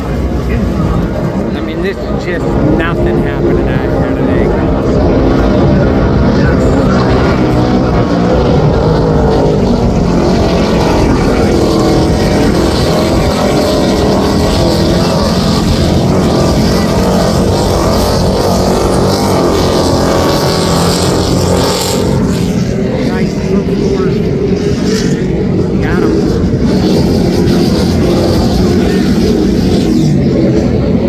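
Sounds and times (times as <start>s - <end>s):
powerboat engines droning: 0.0s - 31.0s.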